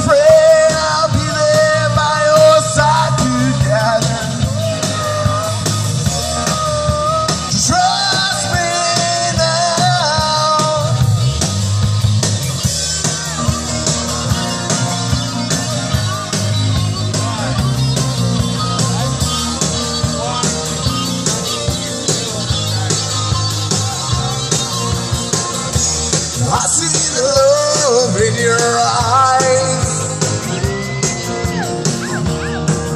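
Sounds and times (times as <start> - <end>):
drum kit beat: 0.0 - 32.9
electric guitars: 0.0 - 32.9.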